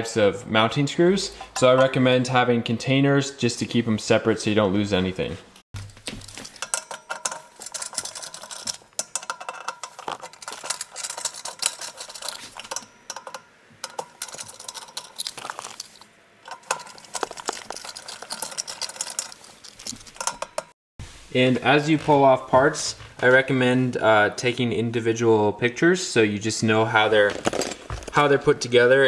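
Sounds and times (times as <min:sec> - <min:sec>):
screwdriver clicking on metal screws: 0:06.4 - 0:20.7.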